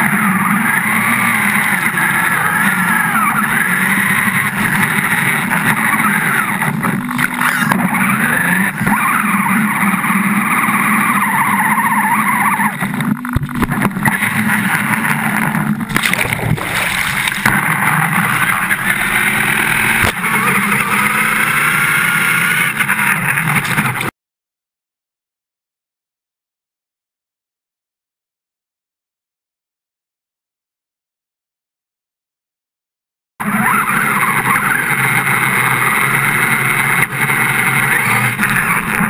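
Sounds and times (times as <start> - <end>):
toy car motor whining: 0.0 - 15.9, 16.7 - 24.1, 33.4 - 39.0
water churning and splashing: 15.9 - 20.2.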